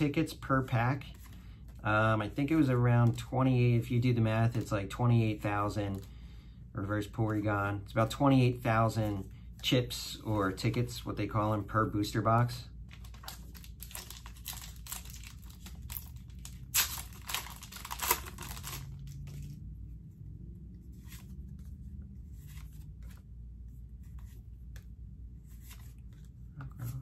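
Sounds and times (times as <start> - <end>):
cards being handled: 4.4 - 6.2, 12.1 - 19.7, 20.8 - 27.0
foil wrapper crinkling and tearing: 12.9 - 19.3.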